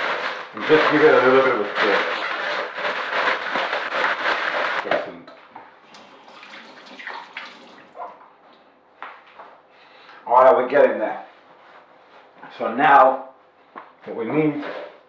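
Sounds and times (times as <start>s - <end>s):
tortilla chips rustling in bowl: 0.0s - 4.9s.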